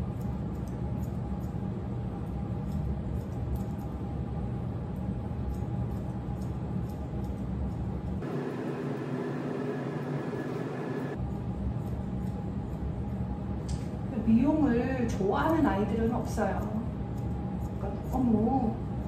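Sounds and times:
scissors snipping hair: 0.0 - 8.2, 11.2 - 14.0, 14.7 - 19.0
low hum with hiss: 0.0 - 19.0.

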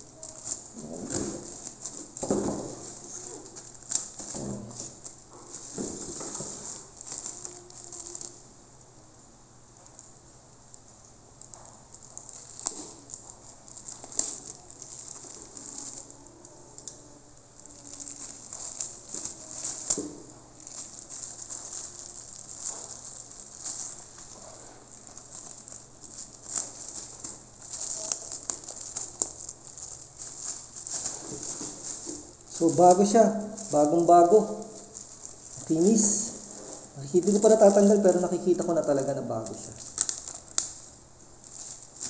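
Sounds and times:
plastic wrap crinkling: 0.0 - 42.0.

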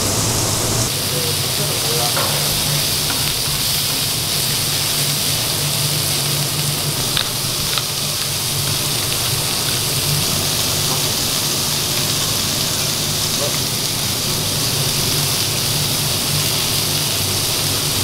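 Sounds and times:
food sizzling on griddle: 0.0 - 18.0.

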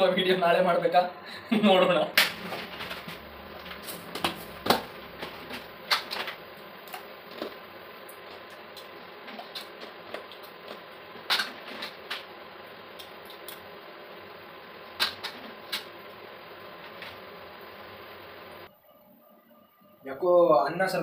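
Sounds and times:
steady background hiss: 0.0 - 18.7.

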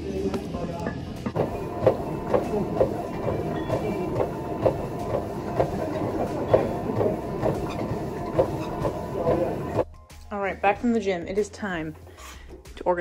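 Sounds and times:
cardio machine clattering: 1.2 - 9.8.

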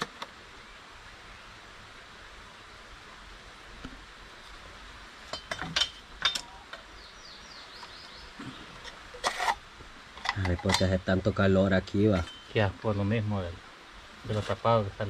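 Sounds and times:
steady background hiss: 0.0 - 15.0
bird chirping: 6.5 - 8.9.

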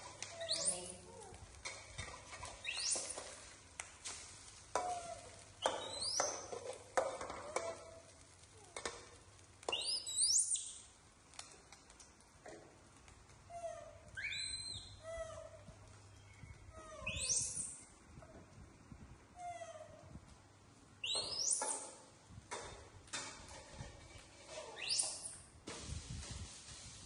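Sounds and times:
egg frying: 0.0 - 13.4
young monkeys squeaky calls: 0.4 - 1.0, 4.9 - 6.5, 13.7 - 15.6, 16.8 - 17.8, 21.0 - 21.8, 24.6 - 25.4
metal spatula scraping wok: 1.6 - 3.5, 23.1 - 25.4.

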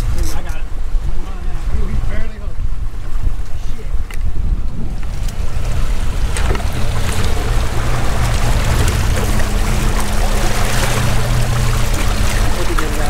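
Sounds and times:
outboard motor humming: 0.0 - 13.0
water splashing from thrashing fish: 5.1 - 13.0.

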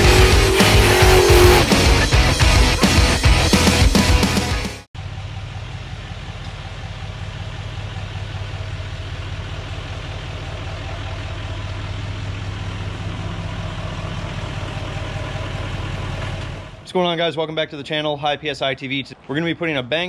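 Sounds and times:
rock music: 0.0 - 4.9
diesel truck engine idling: 5.0 - 16.9.

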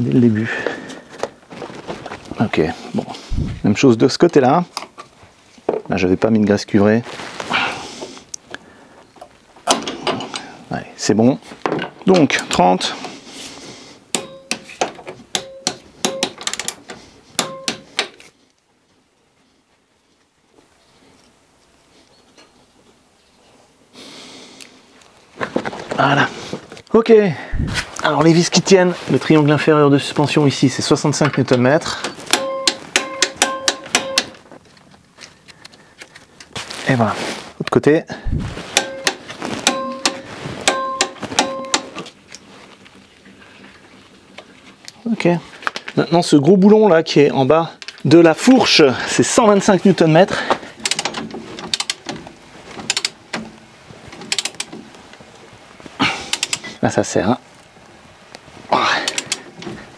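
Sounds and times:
short metallic ring: 32.3 - 34.4, 38.8 - 42.0
torque wrench clicking: 50.8 - 52.1, 52.9 - 53.2, 54.3 - 54.7, 56.3 - 56.6, 59.0 - 59.4.

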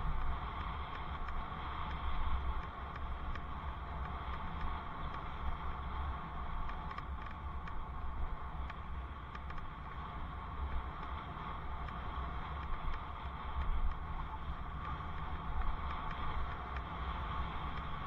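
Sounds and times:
faint ticks: 0.0 - 18.0
wind buffeting microphone: 0.0 - 18.0.

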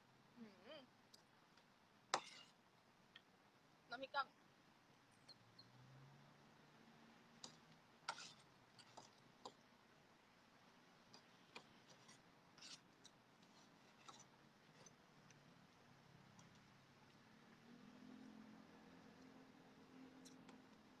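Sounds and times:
cutlery scraping on a plate: 2.2 - 2.6, 8.1 - 9.1, 11.9 - 12.8, 13.4 - 14.9.

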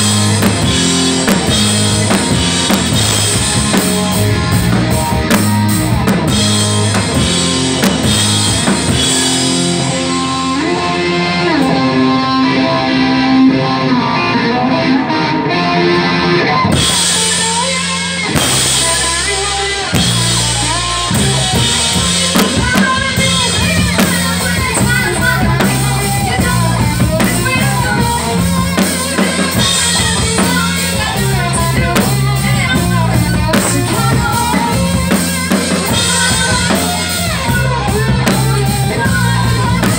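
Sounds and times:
live rock band playing: 0.0 - 39.9
woman singing: 16.9 - 39.9.

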